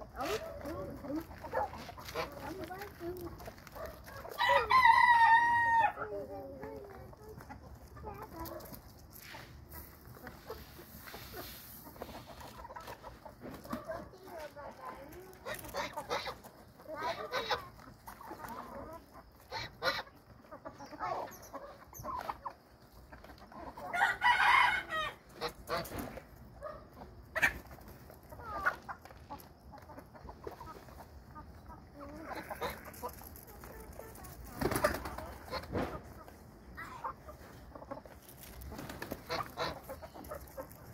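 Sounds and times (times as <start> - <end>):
chickens clucking: 0.0 - 40.9
rooster crowing: 4.4 - 6.0, 24.0 - 25.2.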